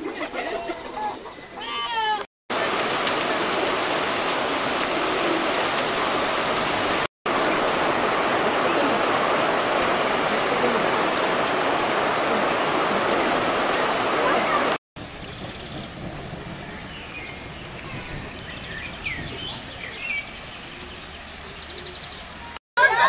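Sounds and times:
steady rain falling: 2.5 - 20.5.

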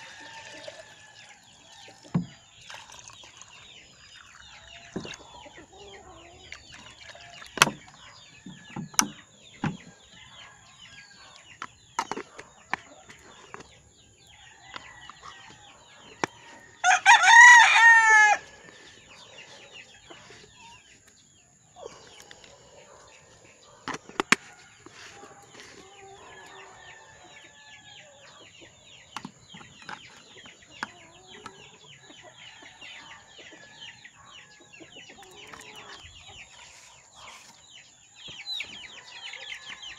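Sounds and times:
chicks peeping: 3.6 - 39.9
rooster crowing: 14.5 - 18.7, 25.8 - 28.2.

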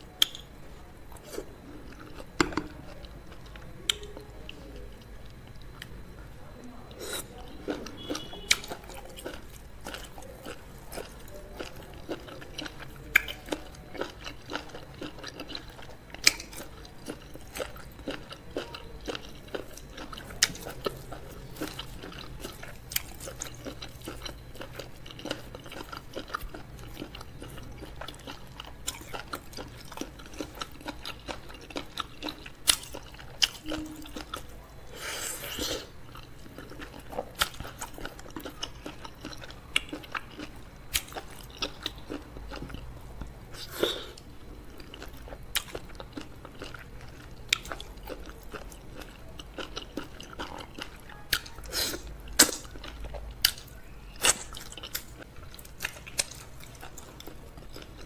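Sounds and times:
wet chewing mouth sounds: 35.4 - 58.0.

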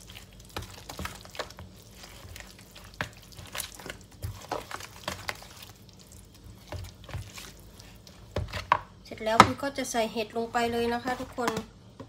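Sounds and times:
spoon stirring wet mixture: 0.0 - 11.7.

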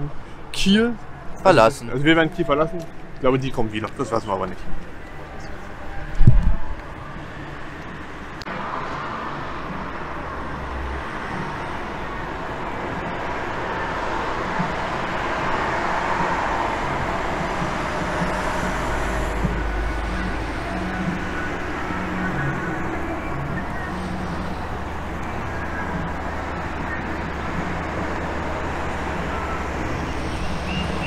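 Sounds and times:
road traffic rushing: 0.0 - 31.0
wind rumble on microphone: 4.6 - 8.2.

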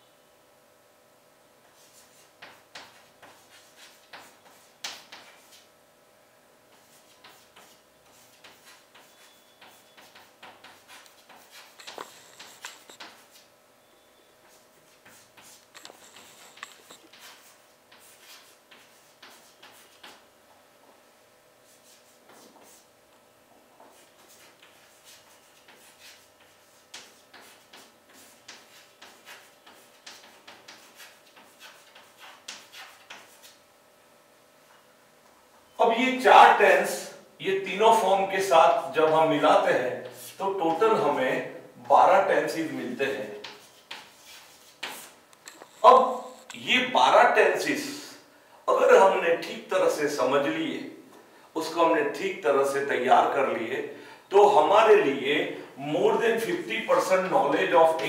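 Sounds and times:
chalk tapping and scratching: 1.6 - 5.7, 6.7 - 13.5, 14.4 - 20.2, 21.6 - 22.9, 23.7 - 33.6, 40.0 - 41.1, 42.6 - 46.5.

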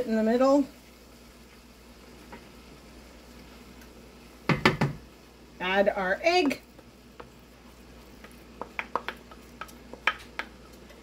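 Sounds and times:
wooden spoon tapping and scraping: 6.2 - 11.0.

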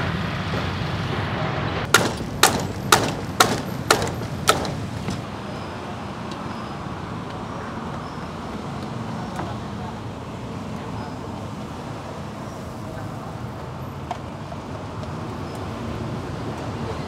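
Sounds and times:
street traffic rumble: 0.0 - 17.0
sharp knocks: 1.9 - 5.3.

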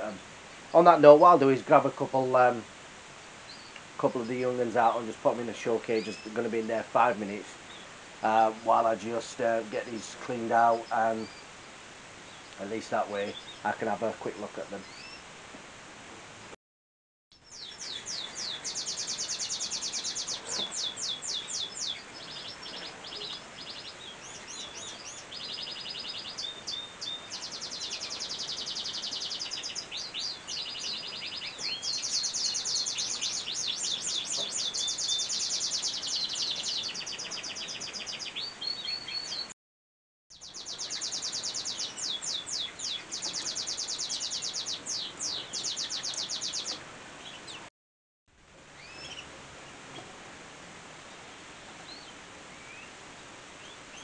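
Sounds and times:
canaries singing trills: 3.4 - 15.3, 17.4 - 39.5, 40.3 - 47.7, 48.7 - 49.8, 51.8 - 53.0.

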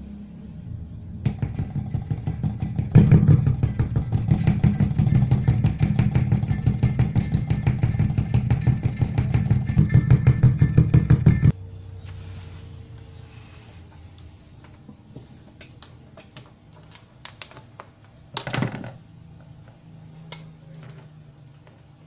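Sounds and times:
rapid pulsing motor noise: 1.0 - 11.5.

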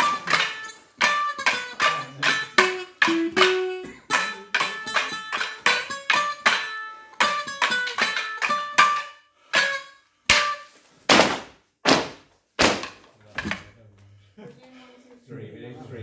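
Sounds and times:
wooden sticks clashing: 0.0 - 13.8
sticks thudding on wooden floor: 9.6 - 13.8.

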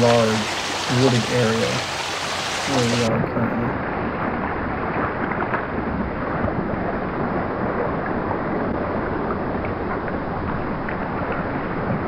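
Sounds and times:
steady outdoor rushing noise: 0.0 - 12.0.

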